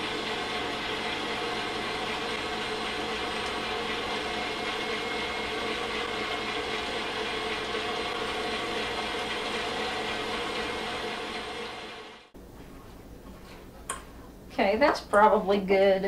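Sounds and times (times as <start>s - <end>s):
stand mixer motor humming: 0.0s - 12.3s.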